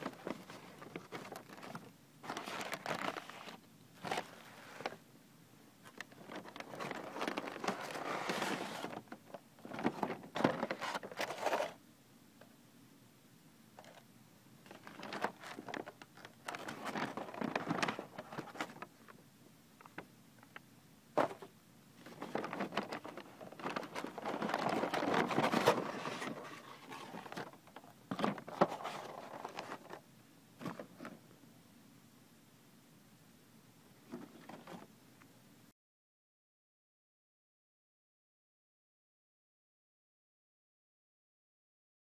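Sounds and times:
paper bag rustling: 0.0s - 5.0s, 5.8s - 11.8s, 14.6s - 19.2s, 21.2s - 30.0s
plastic lid crinkling: 14.6s - 19.2s, 21.2s - 30.0s.

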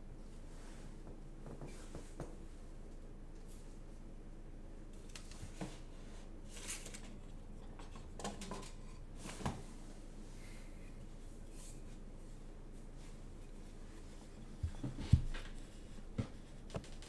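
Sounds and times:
soft clicks and rustles: 13.0s - 17.0s.

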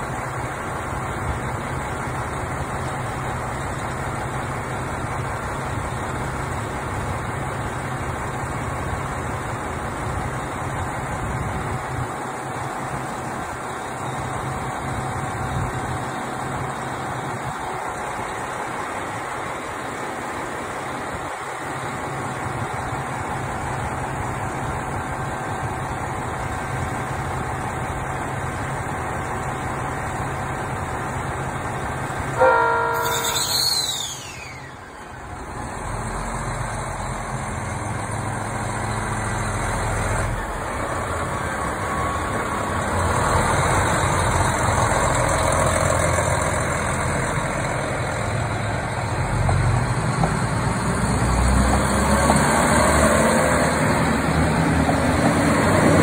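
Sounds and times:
diesel train engine: 0.0s - 56.0s
train wheels rumbling on rails: 0.0s - 56.0s
train horn blast: 32.4s - 34.9s.

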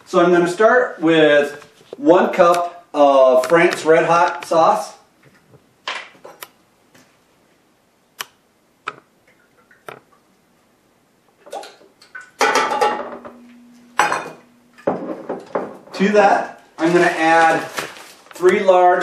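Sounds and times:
metal cup and bottle clinking: 12.4s - 15.8s.

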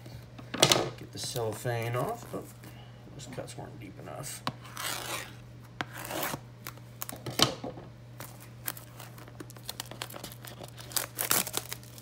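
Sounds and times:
steady low hum: 0.0s - 12.0s
shrink wrap crinkling: 8.2s - 12.0s
shrink wrap ripping: 8.2s - 12.0s.

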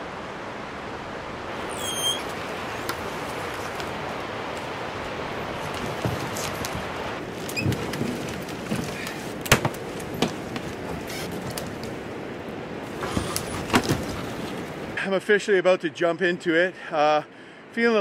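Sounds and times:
canoe hull scraping over branches: 1.5s - 15.0s
twigs snapping: 5.4s - 12.1s.

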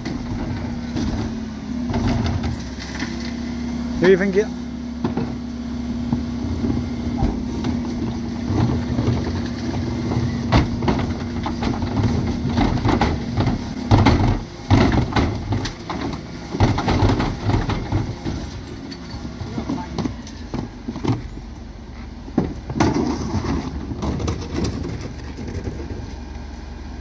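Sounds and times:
truck engine humming: 0.0s - 27.0s
bins clunking and rattling: 7.2s - 21.4s, 22.3s - 26.0s.

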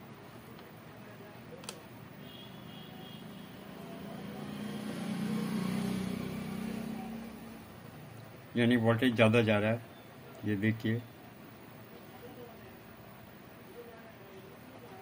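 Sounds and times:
vehicle engine passing by: 3.2s - 7.7s.

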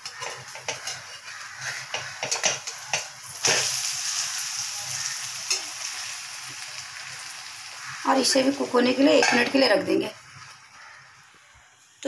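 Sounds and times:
spatula scraping and tapping pan: 0.0s - 3.7s, 9.1s - 9.6s
oil sizzling: 0.0s - 12.0s.

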